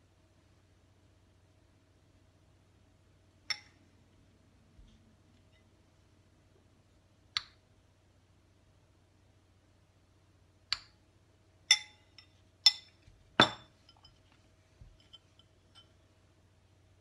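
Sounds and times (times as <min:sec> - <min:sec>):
spoon clinking ceramic bowl: 0:11.7 - 0:14.2.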